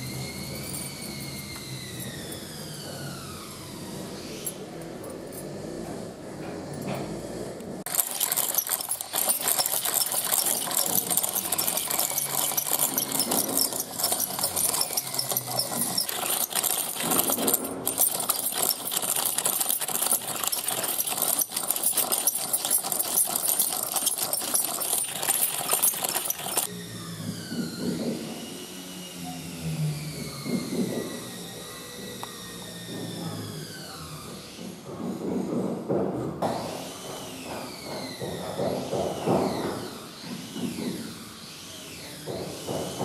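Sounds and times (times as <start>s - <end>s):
coconut scraper rasping: 7.9s - 26.7s.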